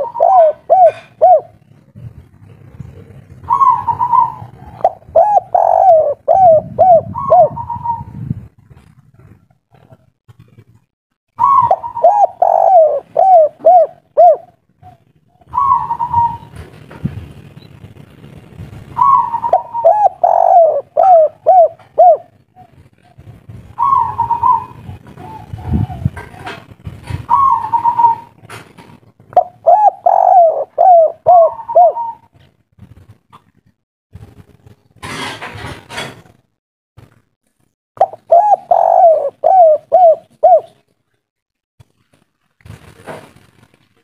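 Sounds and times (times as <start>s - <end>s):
dove cooing: 0.0s - 8.2s, 11.4s - 16.7s, 19.0s - 32.5s, 38.0s - 40.8s.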